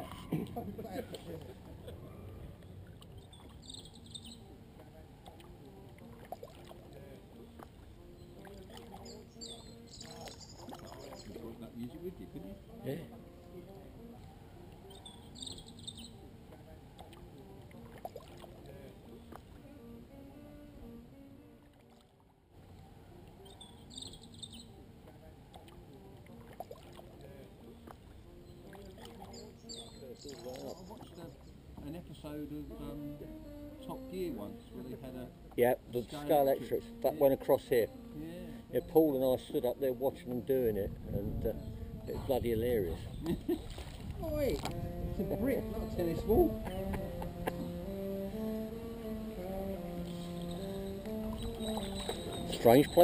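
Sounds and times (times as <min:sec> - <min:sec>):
water sounds: 0:00.0 - 0:53.0
faint tune of held notes: 0:02.0 - 0:43.0, 0:44.3 - 0:53.0
high bird call: 0:14.8 - 0:16.2, 0:23.4 - 0:24.7, 0:50.0 - 0:53.0.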